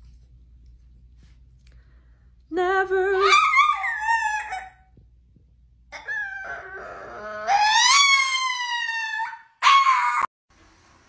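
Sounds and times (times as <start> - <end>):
small dog howling: 3.2 - 4.9, 6.0 - 10.3.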